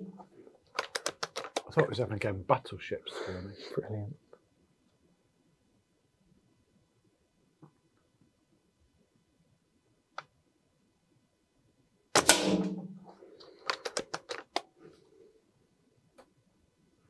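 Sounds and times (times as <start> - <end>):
air rifle shot: 12.2 - 13.1.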